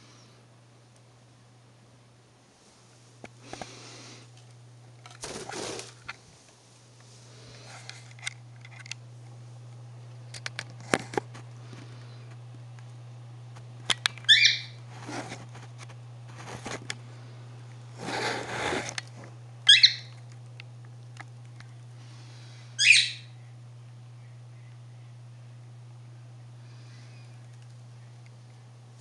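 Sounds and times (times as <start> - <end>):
steady low hum: 0.0 - 29.0
parrot chirping: 14.3 - 14.8, 19.7 - 20.1, 22.8 - 23.4.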